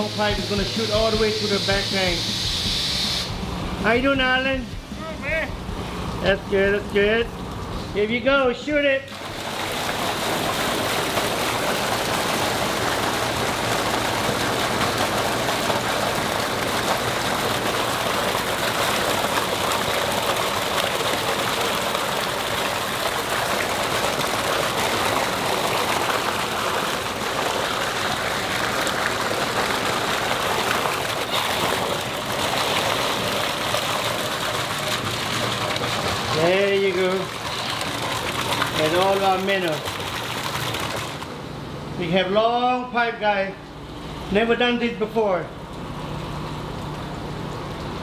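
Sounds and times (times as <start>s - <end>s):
water splashing into tank: 9.1s - 41.4s.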